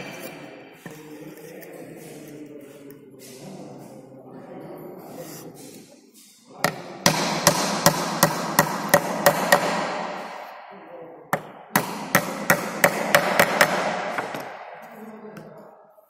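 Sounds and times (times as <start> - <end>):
hammer driving nails into wood: 6.7 - 10.4, 11.4 - 14.7.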